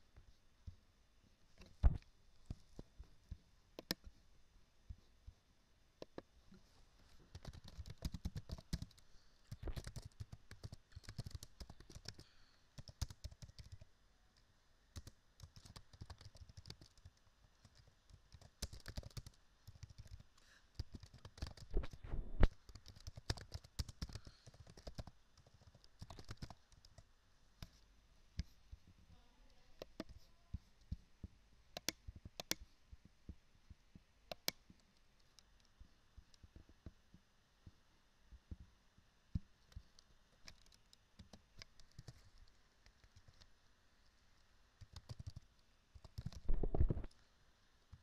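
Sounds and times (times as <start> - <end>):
computer keyboard typing: 7.3 - 13.9, 15.0 - 27.0, 29.8 - 30.2, 31.8 - 32.6, 34.3 - 34.6, 39.7 - 43.5, 44.8 - 47.1.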